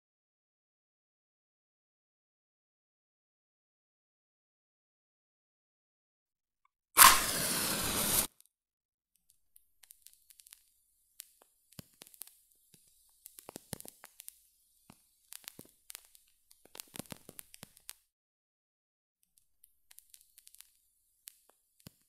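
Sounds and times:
match crackling: 0:07.0 - 0:08.3, 0:09.8 - 0:18.0, 0:19.9 - 0:22.0
match ignition flare: 0:07.0 - 0:08.3, 0:09.8 - 0:18.0.

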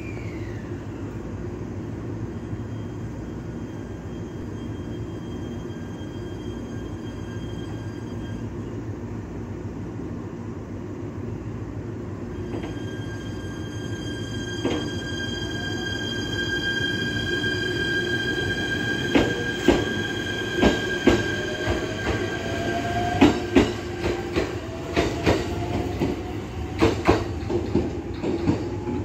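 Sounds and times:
electric train humming: 0:12.3 - 0:29.0
train clunks: 0:14.6 - 0:15.0, 0:19.0 - 0:29.0.

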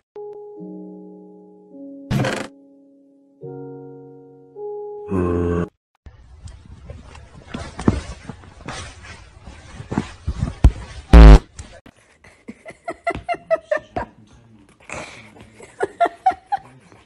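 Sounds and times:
buzzing fart sound effect: 0:11.1 - 0:11.4.

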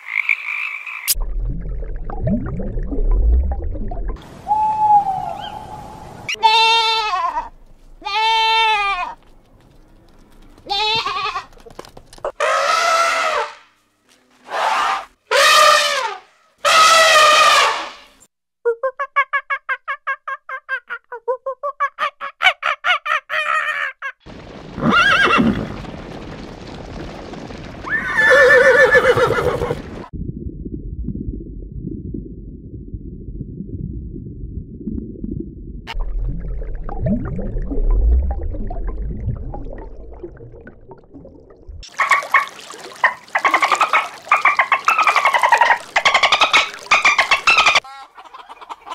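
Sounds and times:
galloping hooves rumbling: 0:08.8 - 0:12.3, 0:24.3 - 0:30.1
horse neighing: 0:28.0 - 0:29.8
loud animal calls: 0:41.9 - 0:48.1.

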